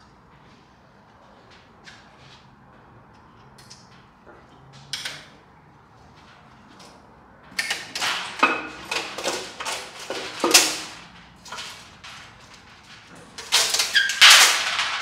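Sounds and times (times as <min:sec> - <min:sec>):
metallic clanks and scrapes: 0:07.5 - 0:15.0.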